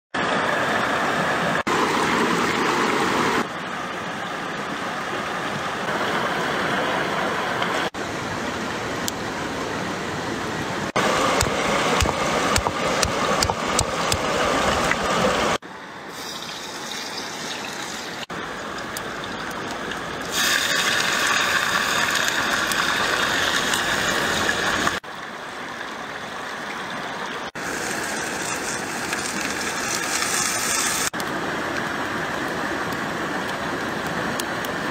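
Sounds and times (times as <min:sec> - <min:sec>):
rushing stream water: 0:00.2 - 0:34.9
cleaver chopping on wood: 0:11.4 - 0:14.2.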